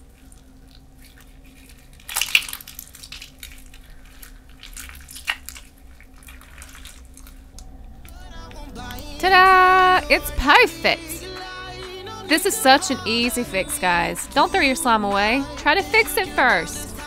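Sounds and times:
slime squishing by hand: 0.0s - 9.0s.

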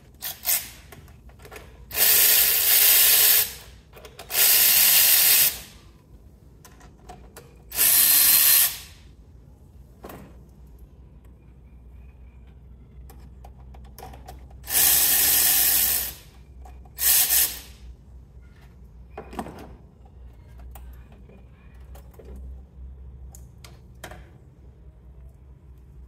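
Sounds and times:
electric ratchet running: 0.2s - 0.9s, 1.9s - 5.8s, 7.7s - 9.0s, 14.6s - 16.3s, 16.9s - 17.8s.

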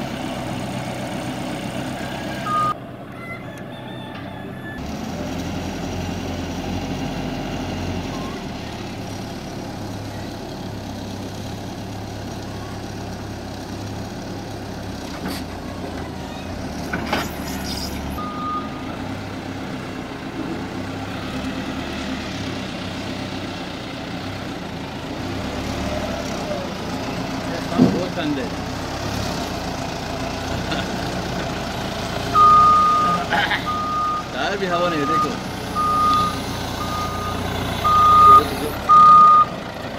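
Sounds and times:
diesel engine running: 0.0s - 39.9s
short beep: 2.5s - 2.8s, 32.4s - 34.3s, 35.1s - 39.5s.

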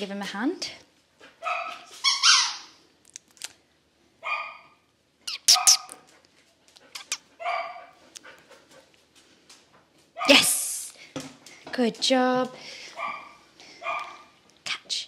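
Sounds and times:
dog barking: 1.4s - 2.6s, 4.2s - 4.8s, 5.5s - 6.1s, 7.4s - 8.0s, 13.0s - 14.3s.

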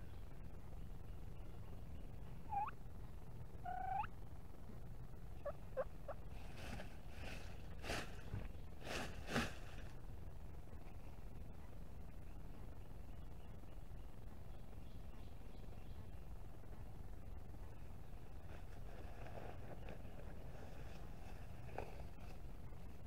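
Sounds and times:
turkey calling: 2.4s - 2.8s, 3.6s - 4.1s, 5.4s - 6.3s
turkey clucks: 2.4s - 2.8s, 3.6s - 4.1s, 5.4s - 6.3s.

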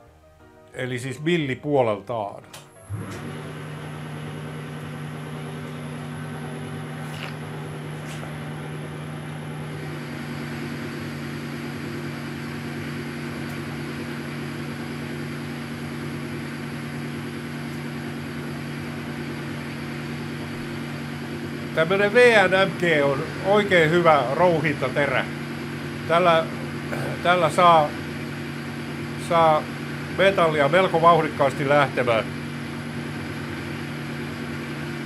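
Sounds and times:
lathe gear hum: 2.6s - 35.0s.

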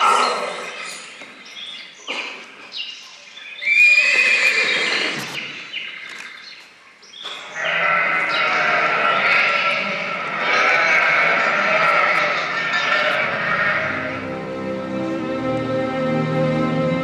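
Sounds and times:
animal whinnying: 0.0s - 1.2s, 3.6s - 5.4s, 7.6s - 14.1s.

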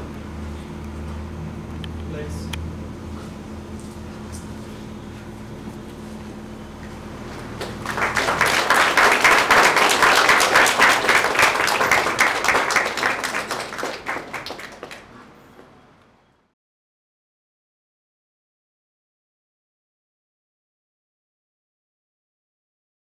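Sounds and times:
audience applauding: 7.4s - 15.7s.

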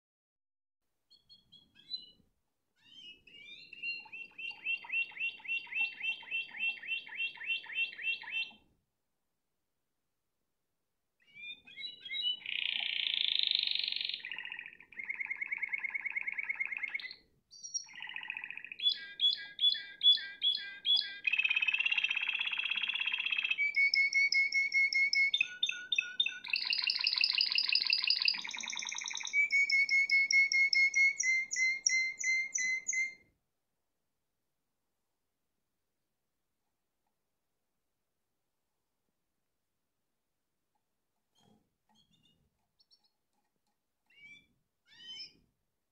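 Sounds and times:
canary singing trills: 1.1s - 2.2s, 2.8s - 8.6s, 11.2s - 33.2s, 44.0s - 45.5s.

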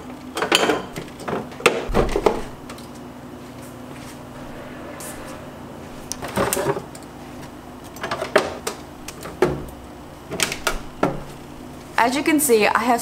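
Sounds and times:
low steady hum: 1.9s - 12.0s.

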